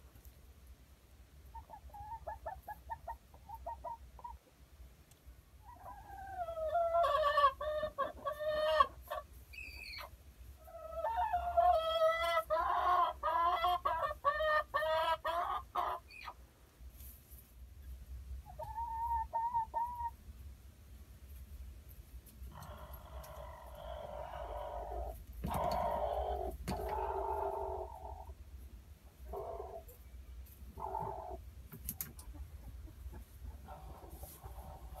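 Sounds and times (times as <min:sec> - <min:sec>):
hen clucking and squawking: 0:01.5 - 0:04.5, 0:05.6 - 0:16.4, 0:18.4 - 0:20.2, 0:22.4 - 0:28.4, 0:29.0 - 0:35.0.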